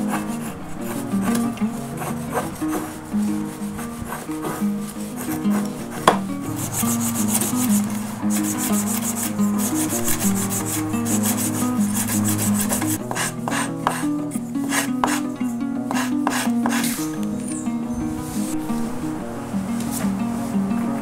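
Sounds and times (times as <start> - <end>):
scratchy sanding strokes: 0.0 - 17.6
soft background music: 0.0 - 21.0
sharp knock: 6.0 - 6.2.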